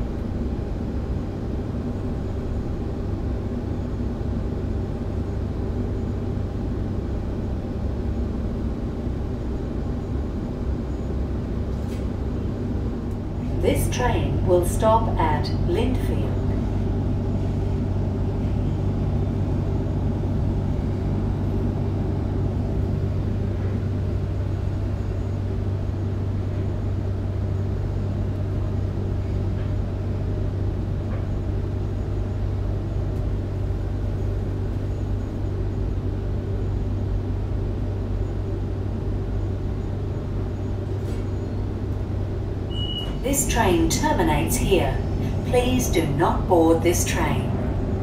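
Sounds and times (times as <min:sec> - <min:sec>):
electric train interior hum: 0:00.0 - 0:48.0.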